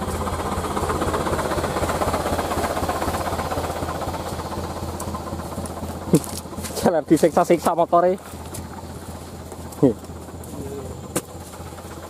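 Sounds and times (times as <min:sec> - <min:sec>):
diesel engine idling: 0:00.0 - 0:12.0.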